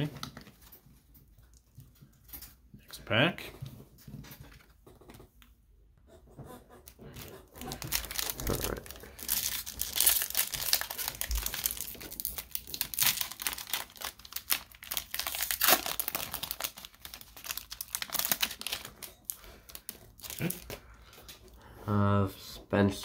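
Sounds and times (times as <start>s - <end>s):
wrapper crinkling and tearing: 7.6s - 20.8s.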